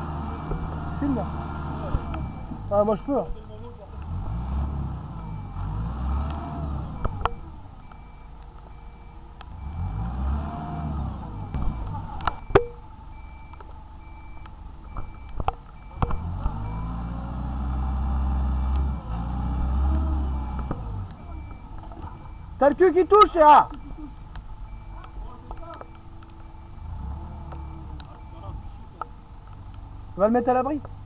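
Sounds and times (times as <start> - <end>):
diesel engine revving: 0.0 - 31.0
high-pitched beeping alarm: 0.2 - 3.3, 11.4 - 17.0, 20.0 - 28.6
sharp metallic knocks: 11.5 - 12.8.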